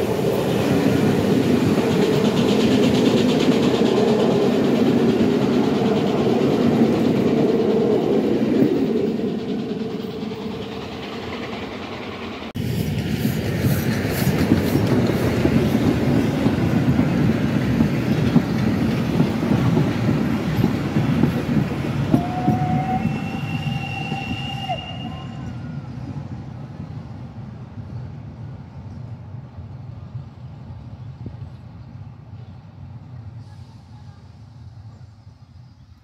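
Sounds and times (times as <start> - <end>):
train wheels clattering over joints: 1.0 - 24.5
high squeal: 22.2 - 26.1.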